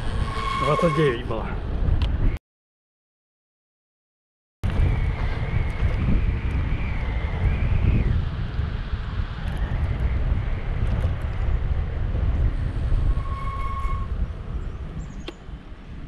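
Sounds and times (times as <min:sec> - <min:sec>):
wind buffeting microphone: 0:00.0 - 0:02.4, 0:04.6 - 0:16.0
tyre noise on asphalt: 0:04.6 - 0:16.0.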